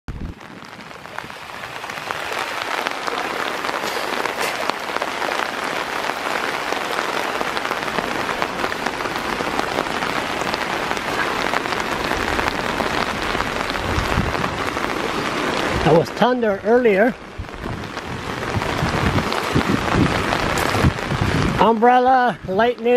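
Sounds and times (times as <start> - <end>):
rain pattering: 0.1 - 22.9.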